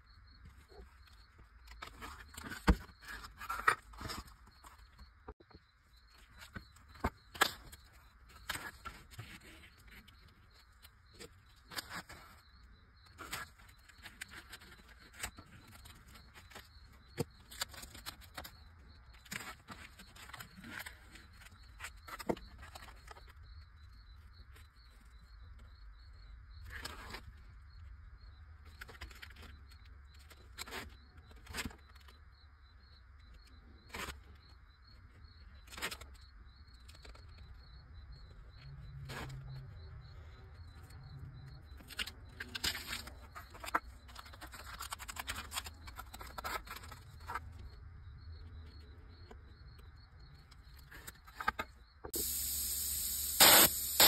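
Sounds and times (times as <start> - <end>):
steady low hum: 52.1 - 54.0
knife cutting tape: 52.2 - 54.0.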